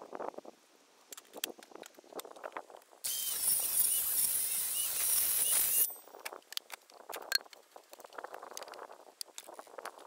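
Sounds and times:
circular saw cutting wood: 3.1 - 6.0.

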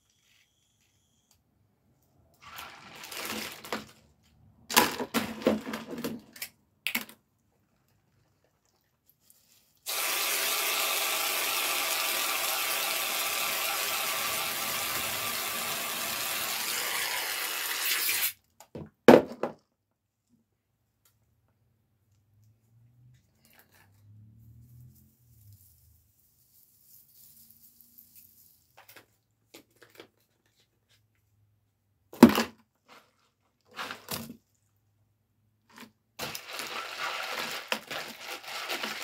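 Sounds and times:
aerosol can spraying whipped cream: 9.9 - 18.4.

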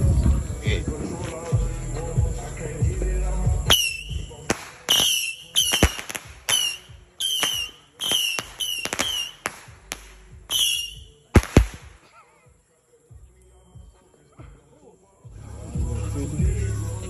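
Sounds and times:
firework bangs with whistling: 3.6 - 12.0.

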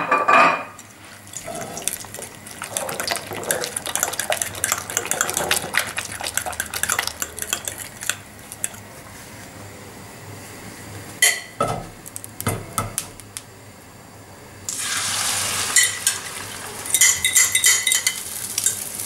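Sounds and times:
spoon clinking and scraping bowl: 0.4 - 8.9, 15.7 - 16.2, 16.9 - 18.8
wet sloshing: 0.8 - 9.2.

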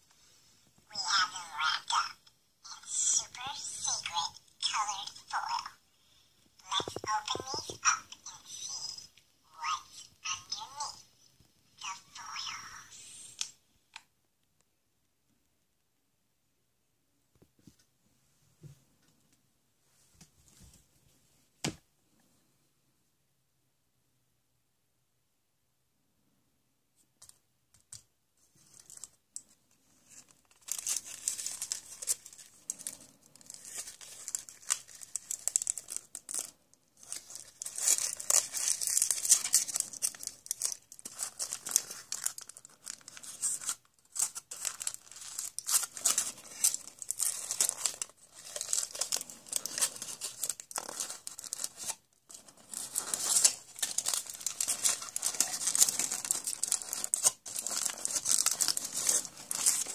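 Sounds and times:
foil wrapping crinkling and tearing: 30.0 - 59.9.

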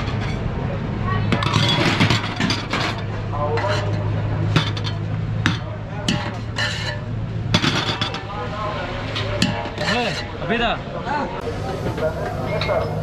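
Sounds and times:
pot lid and plates clanking: 1.3 - 8.3, 9.1 - 10.3
metal spoon scraping in pot: 3.6 - 4.1, 6.1 - 7.1, 9.4 - 10.4.

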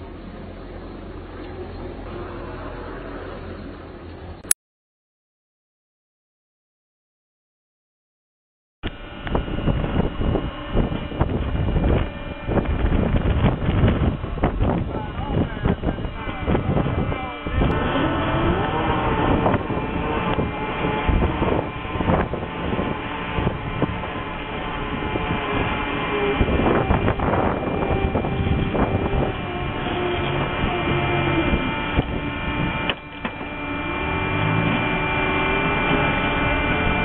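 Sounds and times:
ship mechanical running noise: 8.8 - 37.0
wind buffeting microphone: 8.8 - 37.0.

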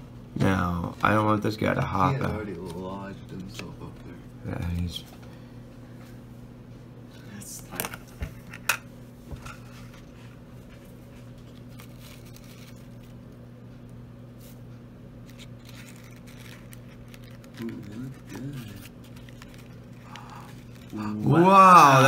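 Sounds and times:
plastic cup rustling: 11.4 - 13.2, 15.2 - 21.3.

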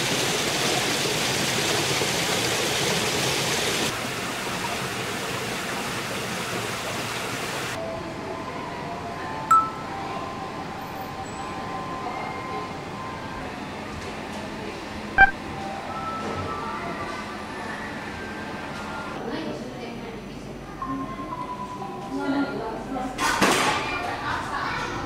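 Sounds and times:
rushing water hiss: 0.0 - 7.8
soft ringing chime tones: 9.5 - 10.2.

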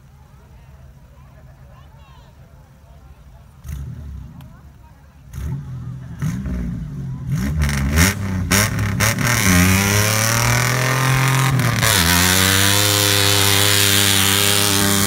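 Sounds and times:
pickup engine revving: 3.6 - 4.6, 5.2 - 15.0.

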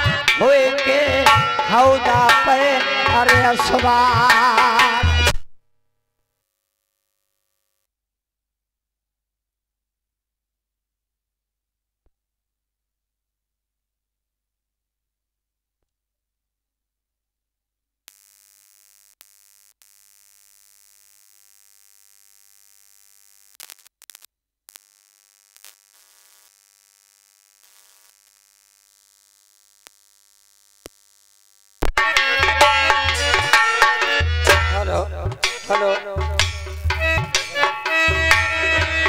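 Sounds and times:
harmonium folk music: 0.0 - 5.4, 31.8 - 39.0
heavy hand drumming: 31.9 - 39.0.

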